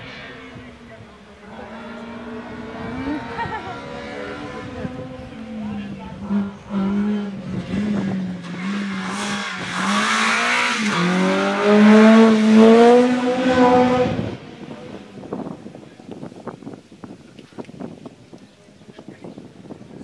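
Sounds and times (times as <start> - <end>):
race car engine revving past: 0.0 - 15.0.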